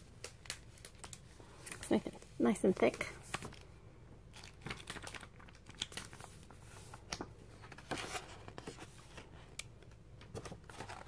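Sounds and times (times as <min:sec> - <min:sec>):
paper crinkles: 0:04.3 - 0:11.0
paper pages flipping: 0:04.3 - 0:11.0.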